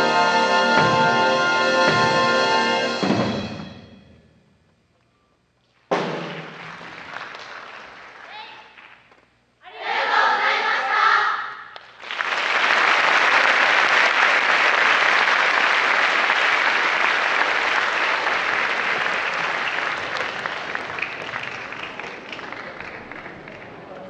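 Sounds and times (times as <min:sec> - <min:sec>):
wind band chord: 0:00.0 - 0:04.2
audience applauding: 0:06.2 - 0:09.1, 0:11.8 - 0:24.0.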